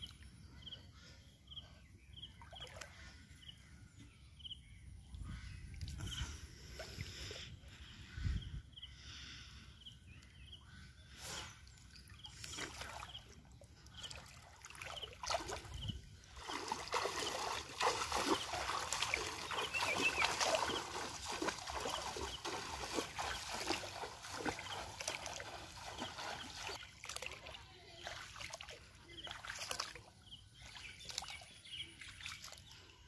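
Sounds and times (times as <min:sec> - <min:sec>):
wading through water splashing: 0:11.7 - 0:33.0.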